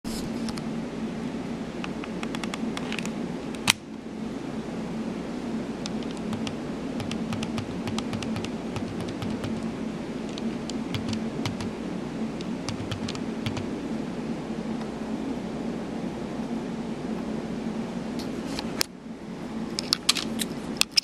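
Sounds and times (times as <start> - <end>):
sharp clicking: 5.8 - 9.7, 10.3 - 11.7
card reader humming: 5.8 - 13.9.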